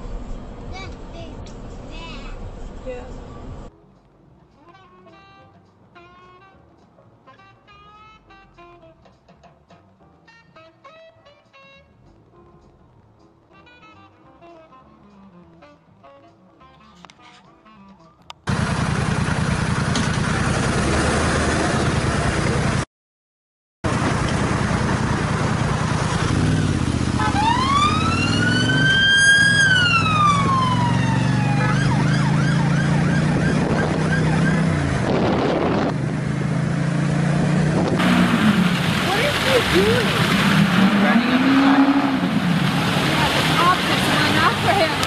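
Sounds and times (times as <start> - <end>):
road and wind noise: 0.0 - 4.5, 18.2 - 22.8, 23.9 - 45.0
motorcycle engine: 18.5 - 22.8, 23.8 - 45.0
siren wailing: 27.2 - 34.8.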